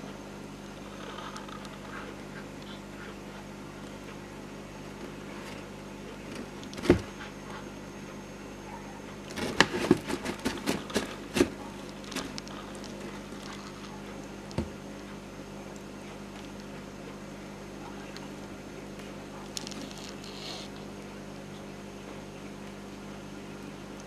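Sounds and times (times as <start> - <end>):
steady low hum: 0.0 - 24.0
clicks and knocks on plastic: 9.3 - 13.9.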